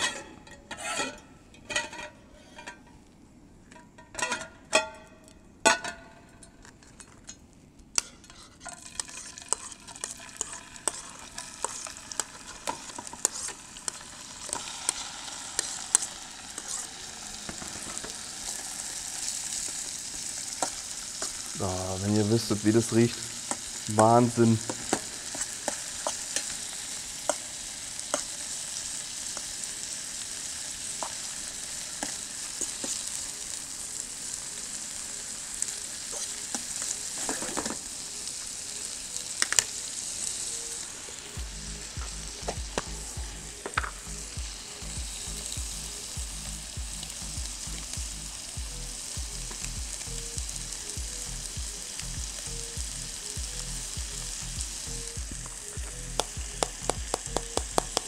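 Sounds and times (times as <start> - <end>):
utensil scraping a pan: 0.0 - 2.8, 8.0 - 15.0, 15.6 - 18.1
bacon sizzling in a frying pan: 8.3 - 58.0
background music with low beat: 41.2 - 58.0.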